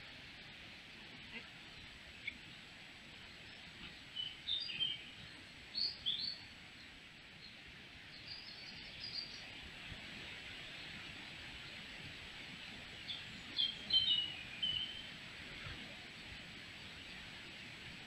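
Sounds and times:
steady hiss: 0:00.0 - 0:18.0
birds chirping: 0:13.1 - 0:15.1.

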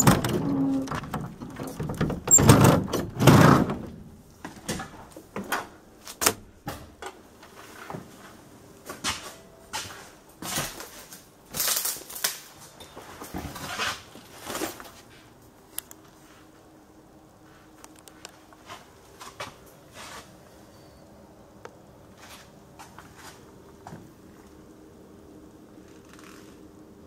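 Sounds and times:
bus door thuds: 0:00.0 - 0:04.0.

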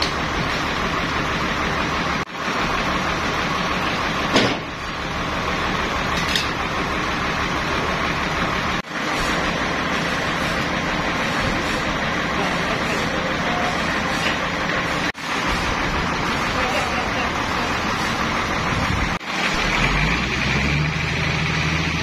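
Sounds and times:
sawmill machinery running: 0:00.0 - 0:22.0
sharp knock: 0:04.3 - 0:04.7.

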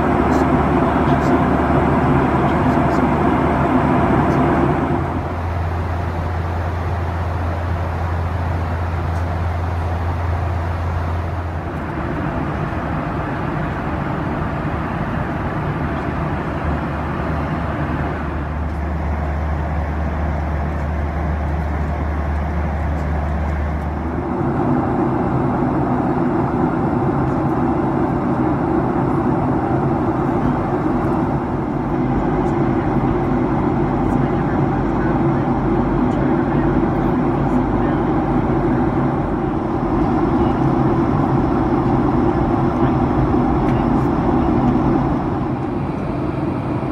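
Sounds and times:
airplane cabin engine drone: 0:00.0 - 0:46.9.

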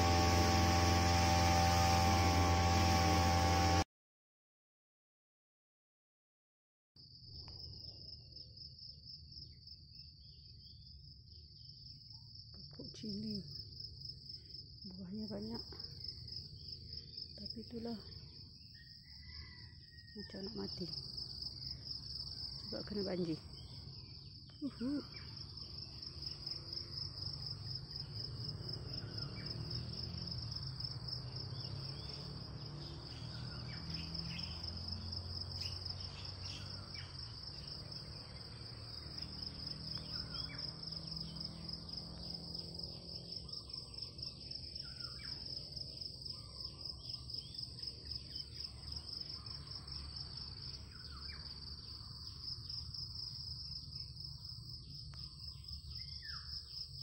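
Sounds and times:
faint bird chirps: 0:17.3 - 0:20.7
insects chirring: 0:20.4 - 0:57.0.

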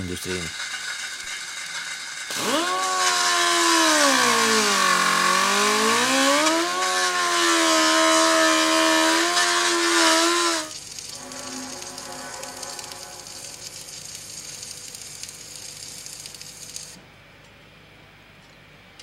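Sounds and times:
angle grinder grinding steel: 0:00.5 - 0:13.7.

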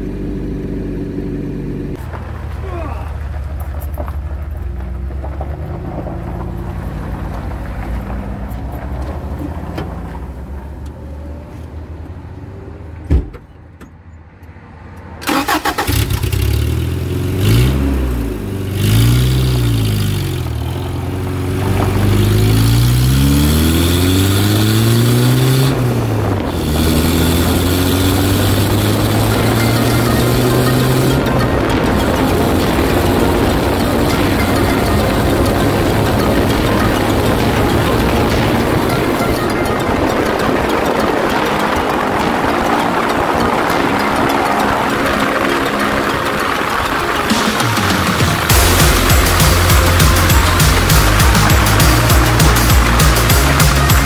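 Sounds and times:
vehicle engine idling and revving: 0:00.0 - 0:54.0
thump: 0:13.1 - 0:13.9.

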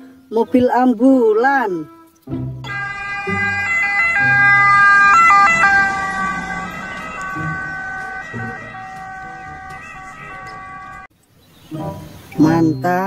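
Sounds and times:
ambulance siren: 0:02.6 - 0:11.1.

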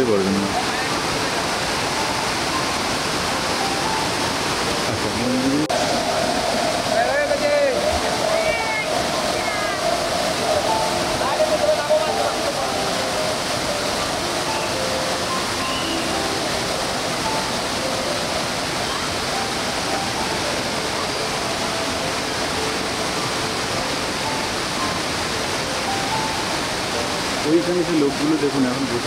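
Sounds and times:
waterfall pouring into pool: 0:00.0 - 0:29.0.

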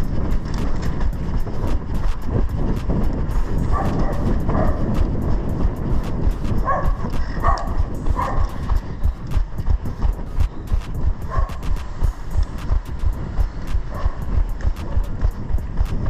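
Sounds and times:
running footsteps on pavement: 0:00.0 - 0:16.0
wind rumble: 0:00.0 - 0:16.0
camera jostling: 0:00.3 - 0:03.0.

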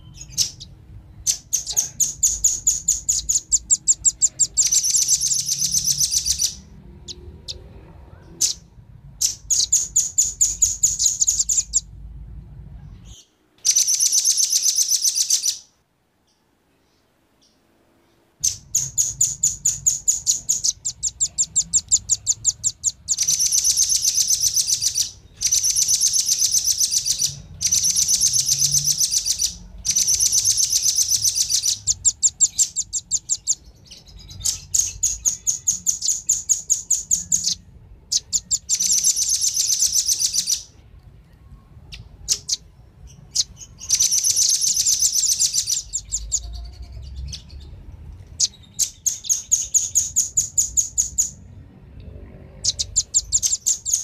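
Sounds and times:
high-pitched bird chips: 0:00.0 - 0:07.2, 0:08.4 - 0:11.9, 0:13.0 - 0:15.7, 0:18.4 - 0:40.8, 0:41.8 - 0:47.6, 0:48.3 - 0:51.4, 0:52.6 - 0:54.0
nuthatches chattering trills: 0:00.2 - 0:07.6, 0:09.2 - 0:11.9, 0:18.4 - 0:40.7, 0:41.9 - 0:47.7, 0:52.6 - 0:54.0.

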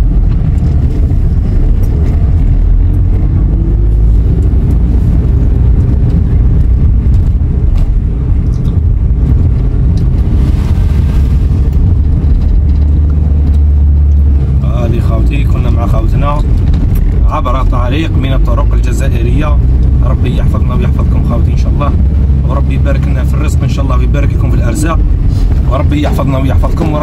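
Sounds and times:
car engine and road noise: 0:00.0 - 0:27.0.

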